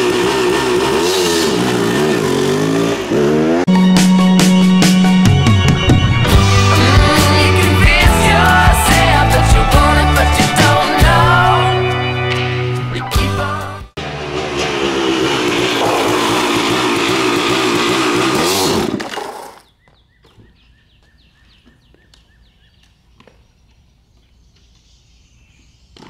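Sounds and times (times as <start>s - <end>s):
dirt bike engine running: 0.0s - 5.0s, 14.0s - 19.6s.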